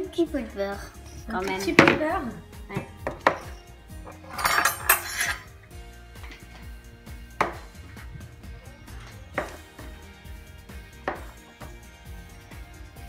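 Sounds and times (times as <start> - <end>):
soft background music: 0.0 - 13.0
metal utensil scraping plastic tub: 3.2 - 5.6
utensil knocking against bowl: 11.1 - 11.4.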